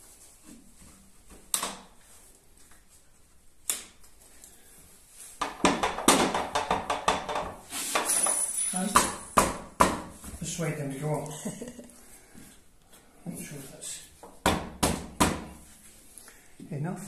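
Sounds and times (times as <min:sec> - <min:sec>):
wooden knocks and clicks: 0:05.4 - 0:07.6.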